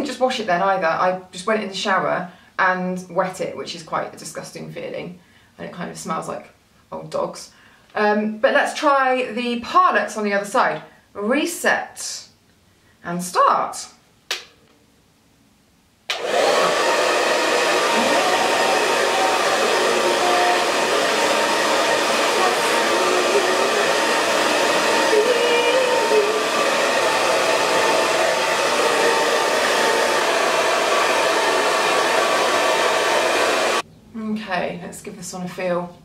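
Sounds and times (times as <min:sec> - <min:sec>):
hair dryer running: 0:16.1 - 0:33.8.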